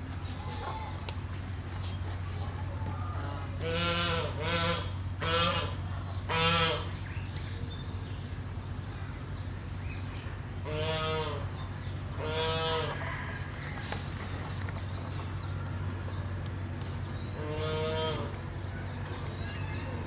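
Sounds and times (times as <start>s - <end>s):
geese honking: 3.2s - 7.0s, 10.6s - 11.5s, 12.1s - 13.3s, 17.4s - 18.5s.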